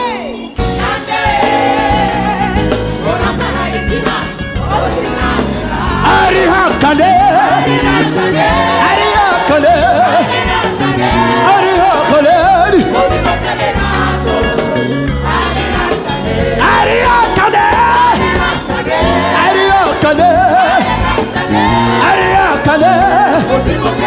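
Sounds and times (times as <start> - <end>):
band with drum kit: 0.0 - 24.0
man singing: 5.9 - 10.3, 11.4 - 13.2, 16.6 - 18.4, 19.3 - 20.9, 22.0 - 24.0.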